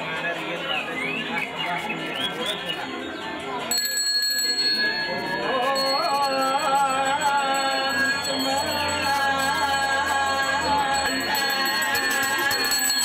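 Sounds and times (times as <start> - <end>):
person singing a devotional chant: 5.4 - 13.0.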